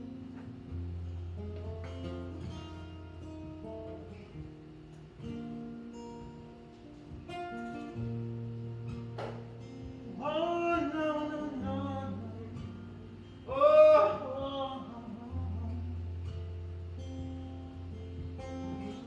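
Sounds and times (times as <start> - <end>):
acoustic guitar chords: 0.0 - 19.0
man singing: 10.1 - 16.3.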